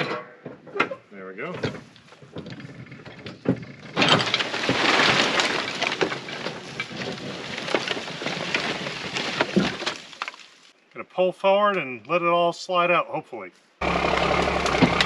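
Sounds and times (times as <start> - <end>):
debris clattering in truck bed: 1.5 - 10.5.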